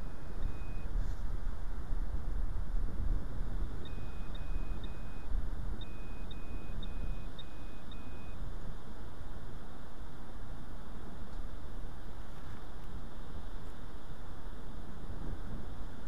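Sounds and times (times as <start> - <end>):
metal detector beeps: 0.0 - 0.9, 3.8 - 8.4.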